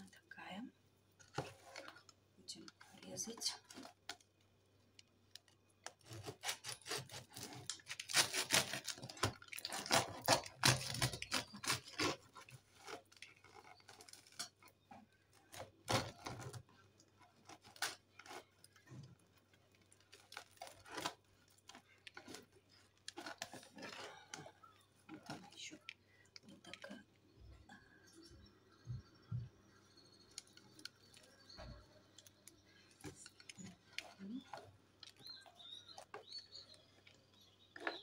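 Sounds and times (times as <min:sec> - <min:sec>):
bread knife sawing crust: 0:06.0 - 0:09.2.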